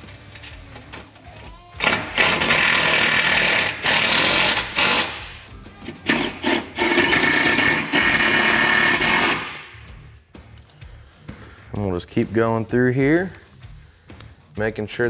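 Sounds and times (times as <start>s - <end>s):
impact driver bursts: 1.8s - 9.8s.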